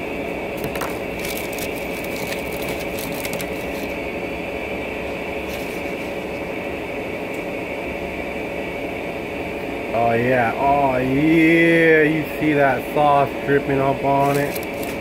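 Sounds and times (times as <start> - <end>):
steady mechanical drone: 0.0 - 15.0
foil wrapper crinkling: 0.6 - 4.0, 5.4 - 6.0, 14.2 - 15.0.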